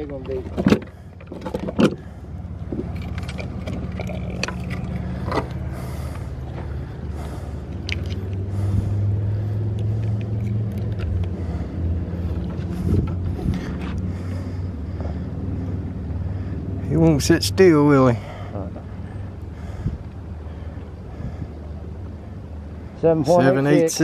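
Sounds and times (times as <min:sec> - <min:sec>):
clicks and knocks of handling fish: 0:00.0 - 0:06.8, 0:07.7 - 0:08.4
boat motor humming: 0:00.0 - 0:24.0.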